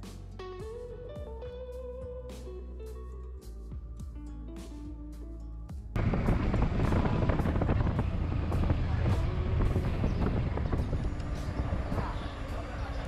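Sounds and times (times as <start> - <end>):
motorcycle engine riding: 6.0 - 13.0
wind rumbling on microphone: 6.0 - 13.0.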